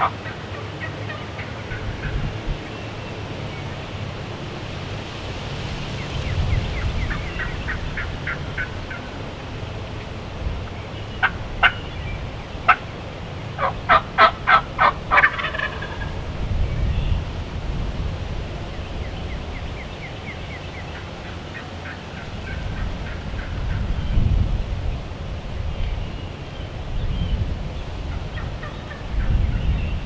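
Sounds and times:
wild turkey calling: 0:00.0 - 0:04.0, 0:06.7 - 0:16.4, 0:19.0 - 0:24.2, 0:28.1 - 0:30.0.

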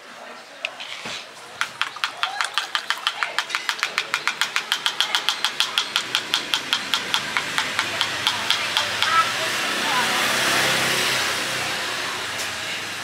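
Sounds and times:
rapid mechanical ticking: 0:01.5 - 0:09.8.

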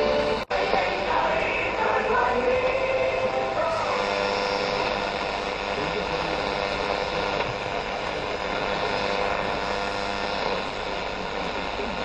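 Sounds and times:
radio static and hiss: 0:00.0 - 0:12.0.

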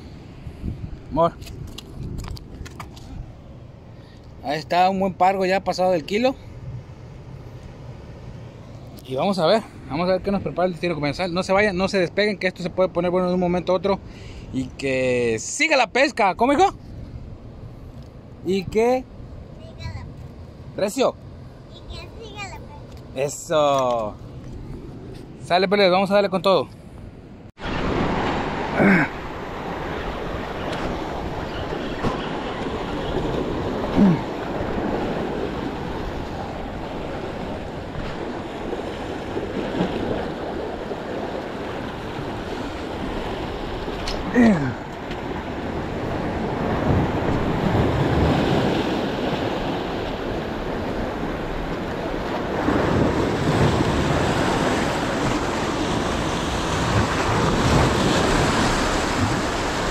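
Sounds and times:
wind on microphone: 0:00.0 - 0:03.6
waves breaking over rocks: 0:27.6 - 0:59.9.

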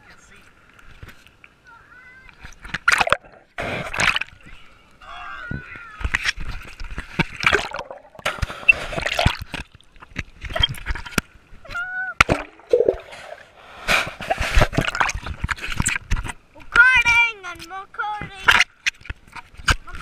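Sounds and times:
water splashing and sloshing: 0:00.2 - 0:05.0, 0:05.6 - 0:20.0
child's voice: 0:01.6 - 0:02.4, 0:16.6 - 0:18.6.

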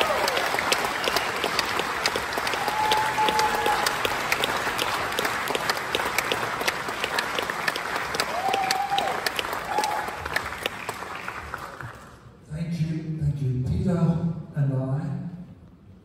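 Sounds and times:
audience applauding: 0:00.0 - 0:12.3.

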